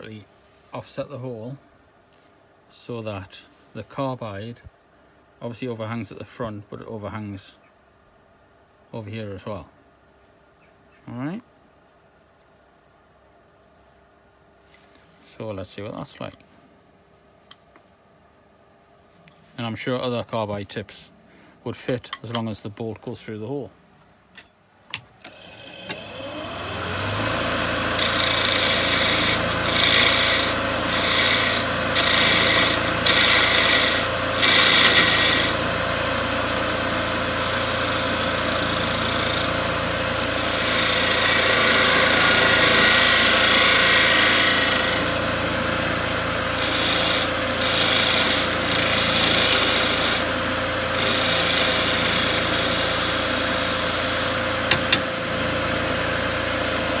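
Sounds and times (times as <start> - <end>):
wood lathe motor humming: 25.2 - 57.0
lathe knife scraping wood: 25.4 - 57.0.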